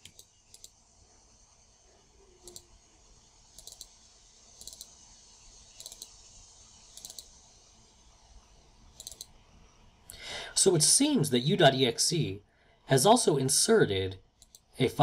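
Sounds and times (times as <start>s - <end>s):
faint mouse double-clicks: 2.4s - 2.7s, 4.6s - 4.9s, 5.8s - 6.2s, 6.9s - 7.3s.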